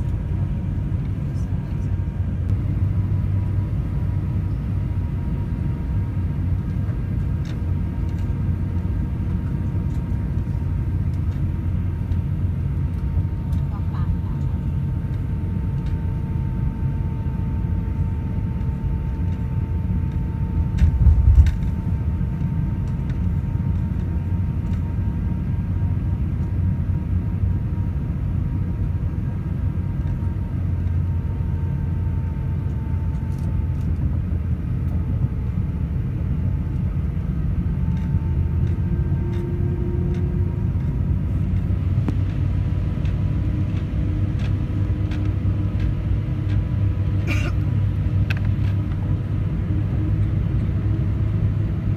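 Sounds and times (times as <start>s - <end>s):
jet airliner cabin rumble: 0.0s - 51.9s.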